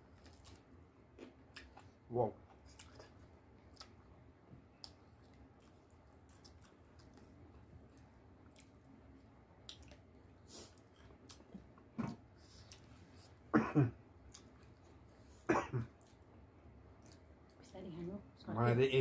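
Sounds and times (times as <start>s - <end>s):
chewing and lip smacks: 0.2s - 13.0s, 14.2s - 15.0s, 16.9s - 17.6s.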